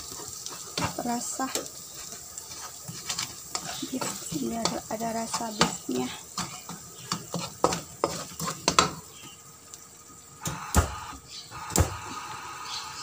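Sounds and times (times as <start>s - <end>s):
spatula scraping a wok: 0.0s - 9.4s
faint sizzle: 0.0s - 13.0s
spatula knocking on pan: 3.6s - 9.1s.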